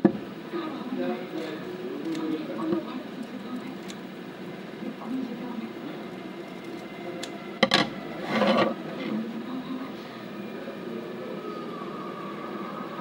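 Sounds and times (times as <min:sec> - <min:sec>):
low background hum: 0:00.0 - 0:13.0
knocks on wooden tabletop: 0:07.6 - 0:07.9.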